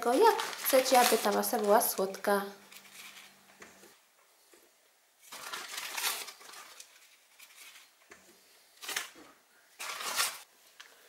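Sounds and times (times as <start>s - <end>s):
plastic bag crinkling: 0.0s - 3.4s, 5.2s - 8.0s, 9.8s - 10.5s.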